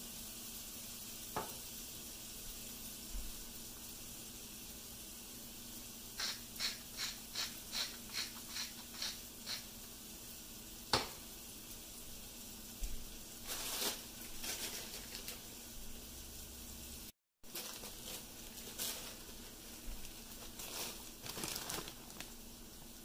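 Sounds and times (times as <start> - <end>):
meat sizzling in a pan: 0.0 - 23.0
salt shaker shaking: 5.6 - 9.8, 13.0 - 15.7, 17.5 - 23.0
scratchy rasping of pepper grinder: 6.2 - 9.7.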